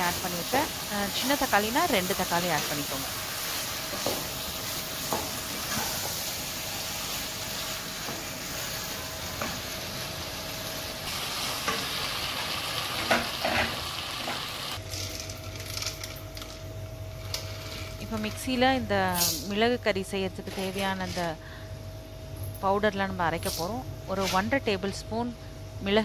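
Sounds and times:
food sizzling in a pan: 0.0 - 14.8
low steady hum: 14.8 - 26.0.

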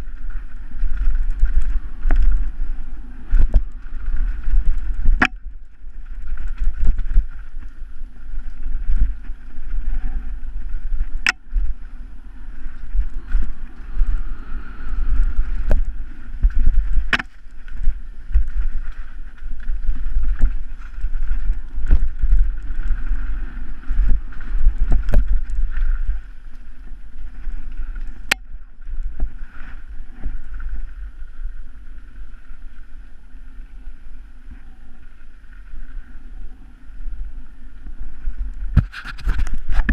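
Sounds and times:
bike rattling: 0.0 - 31.7
bike tyre noise: 0.0 - 39.9
wind rumble on microphone: 0.0 - 39.9.

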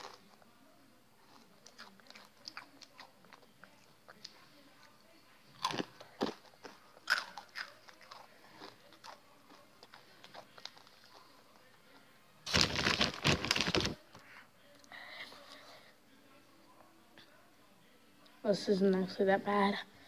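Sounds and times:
chewing crunchy chips: 0.0 - 0.4, 1.2 - 4.3, 5.5 - 11.4.

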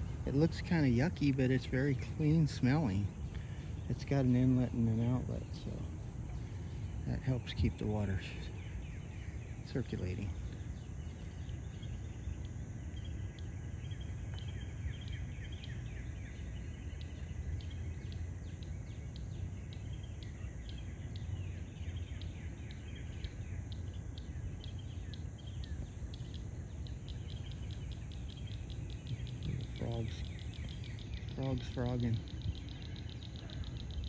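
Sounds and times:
frogs chirping chorus: 0.0 - 34.0
steady low rumble: 0.0 - 34.0.

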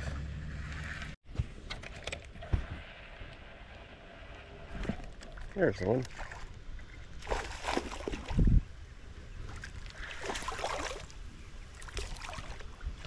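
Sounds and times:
water splashing: 4.7 - 8.6, 9.4 - 13.0.

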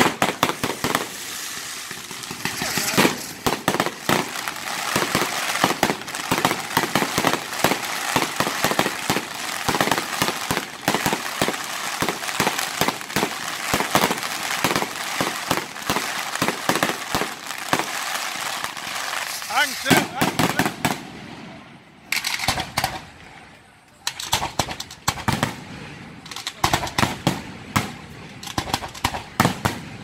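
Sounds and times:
fireworks shells bursting: 0.0 - 18.0, 22.1 - 23.0
crackling fireworks: 0.0 - 30.0.

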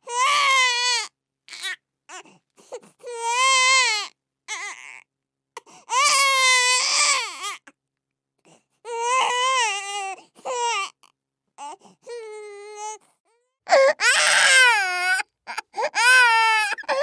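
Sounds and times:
baby crying: 0.0 - 2.3, 3.0 - 5.0, 5.9 - 7.7, 8.9 - 11.0, 13.7 - 17.0.

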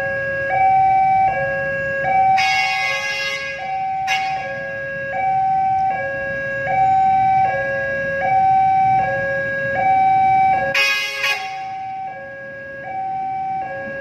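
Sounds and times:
level crossing two-tone alarm: 0.0 - 14.0
short loud horn blast: 2.4 - 4.7, 10.8 - 11.8.

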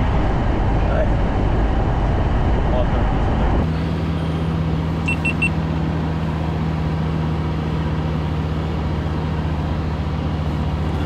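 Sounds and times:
vehicle engine humming: 0.0 - 11.0
quick high beeps: 5.0 - 5.6.

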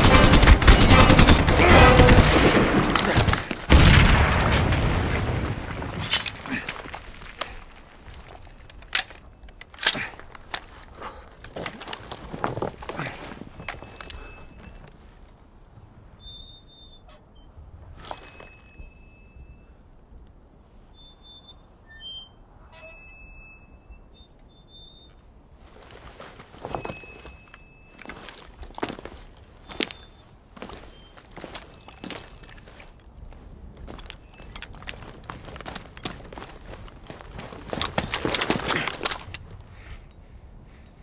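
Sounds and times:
machine gun firing: 0.0 - 4.8
sharp crack: 0.0 - 7.6
low battle rumble: 0.0 - 9.2.

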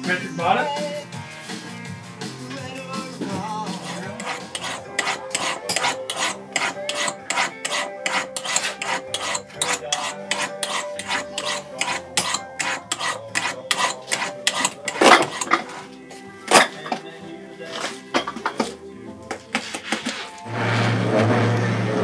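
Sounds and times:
hand rasp scraping a boot: 3.6 - 15.9, 19.6 - 21.5.

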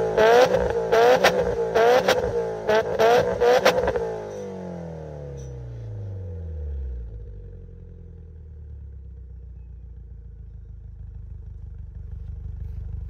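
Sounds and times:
car engine revving and idling: 0.0 - 13.0.

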